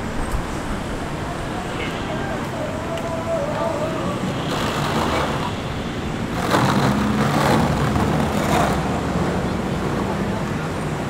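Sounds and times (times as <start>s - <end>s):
street traffic noise: 0.0s - 11.0s
vehicle engine hum passing: 3.8s - 11.0s.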